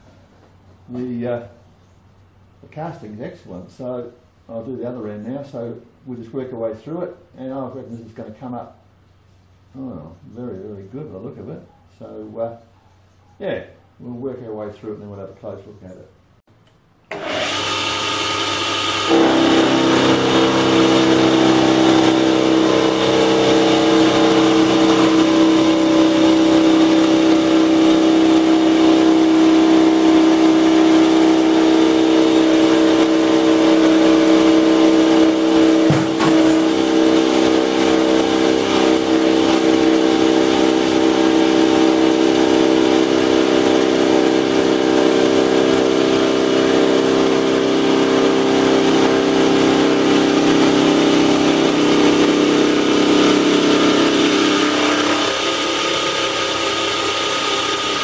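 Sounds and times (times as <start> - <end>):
metal lathe whirring: 17.1 - 58.0.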